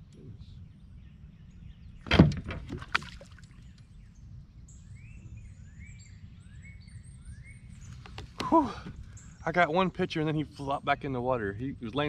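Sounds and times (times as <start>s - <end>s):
birds chirping: 0.0s - 12.0s
water splash: 2.1s - 3.5s.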